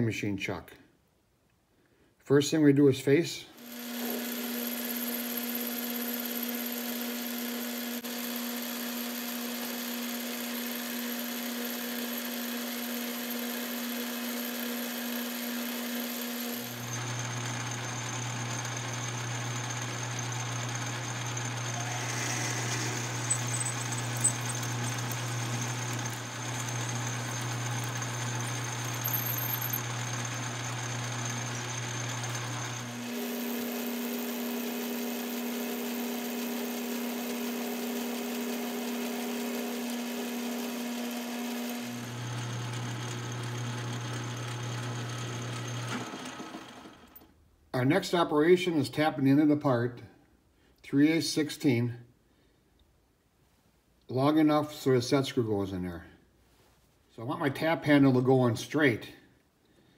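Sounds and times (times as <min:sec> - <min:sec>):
metal lathe humming: 0:03.6 - 0:47.2.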